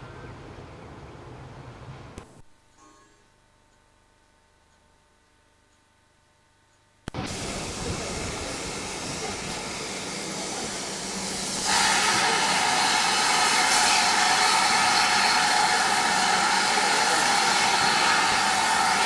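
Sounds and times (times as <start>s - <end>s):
locomotive steam hissing: 7.2s - 19.0s
crowd murmur: 7.5s - 11.2s.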